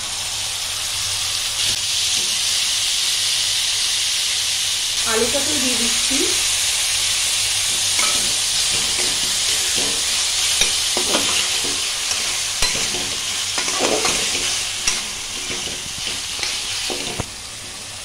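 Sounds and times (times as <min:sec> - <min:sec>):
food sizzling in oil: 0:00.0 - 0:18.0
spatula scraping metal pan: 0:07.6 - 0:17.8.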